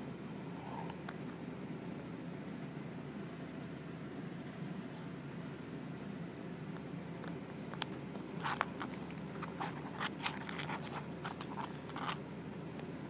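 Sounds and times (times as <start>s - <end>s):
rabbit crunching pellets: 6.6s - 13.0s.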